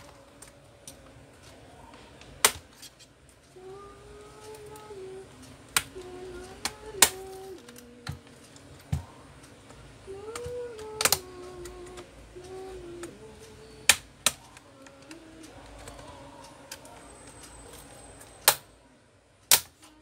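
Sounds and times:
plastic clips snapping loose: 10.3s - 12.0s, 19.5s - 19.9s.

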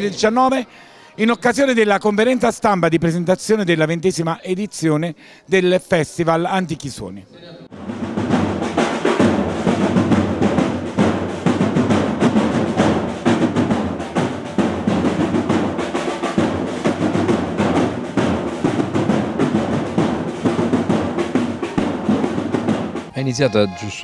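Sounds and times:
marching drums playing rolls: 7.8s - 23.8s.

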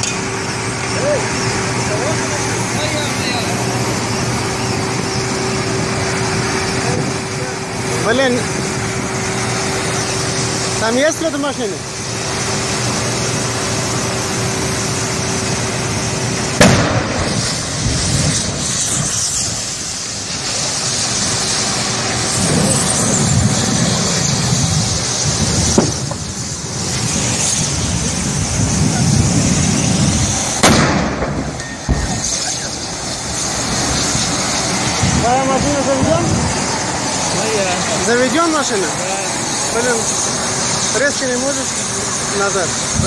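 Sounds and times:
steady rushing noise: 0.0s - 43.0s
loud explosion bangs: 16.6s - 19.1s, 22.4s - 36.7s.

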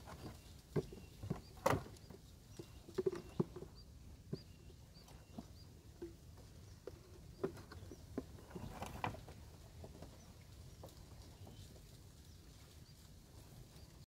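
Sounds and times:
faint bird chirps: 0.1s - 6.0s.

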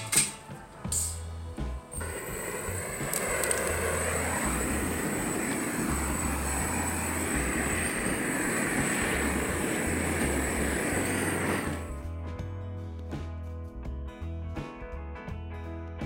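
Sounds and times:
torch flame hissing: 1.9s - 12.0s.

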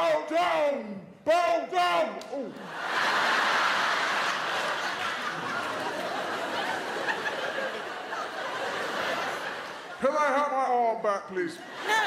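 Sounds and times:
audience laughing: 2.5s - 10.4s.

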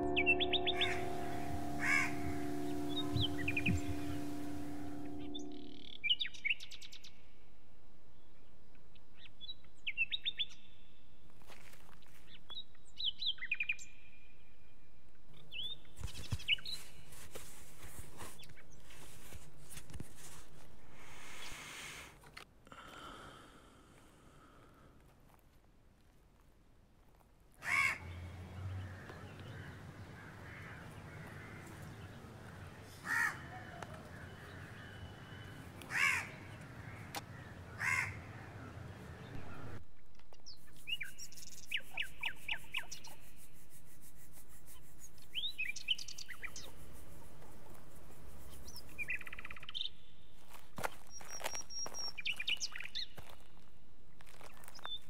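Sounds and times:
crows cawing: 1.8s - 2.8s, 27.6s - 28.1s, 28.8s - 39.0s
small birds chirping: 28.0s - 39.8s, 40.4s - 43.8s, 44.6s - 53.6s.

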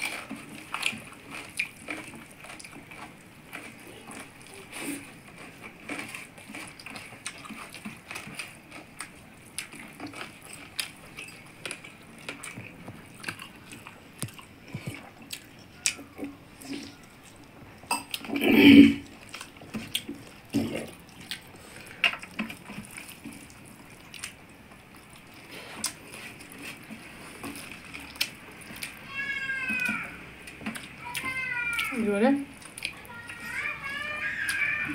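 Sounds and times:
fingers squishing food: 0.0s - 18.3s, 19.1s - 34.9s
chewing and lip smacks: 0.0s - 18.4s, 19.0s - 29.0s, 30.5s - 33.1s.

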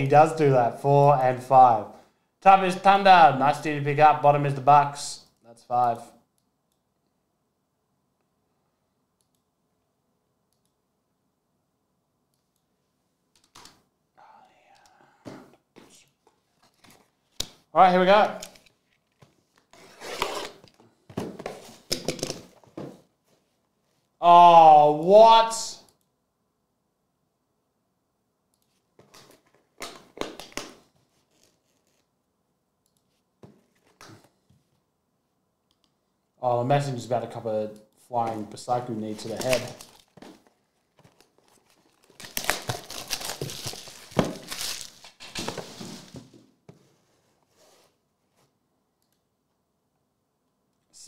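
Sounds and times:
plastic shrink wrap crinkling: 39.2s - 45.5s.

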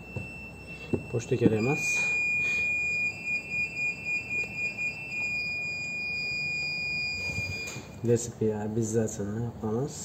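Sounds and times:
high-pitched electronic tone: 0.0s - 7.8s.

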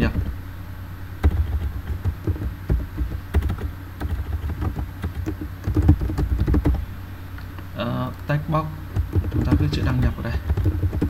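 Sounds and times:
computer keyboard typing: 1.2s - 6.8s, 8.9s - 11.0s.

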